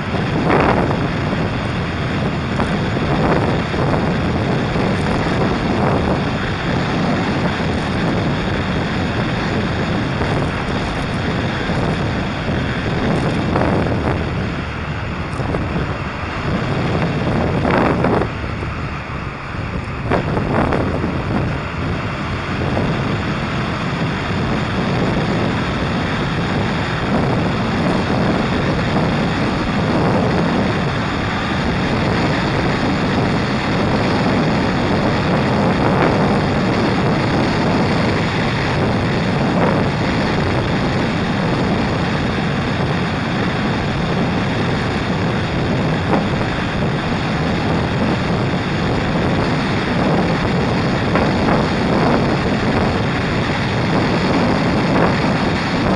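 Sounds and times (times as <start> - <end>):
wind rush on moving motorcycle: 0.0 - 55.9.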